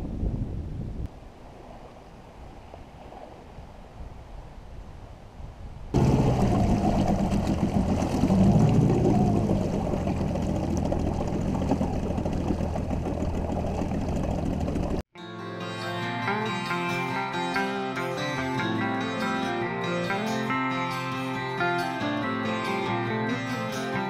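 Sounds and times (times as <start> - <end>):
faint wind noise: 0.0 - 15.0
outboard motor running: 6.0 - 15.0
water rushing past hull: 6.0 - 15.0.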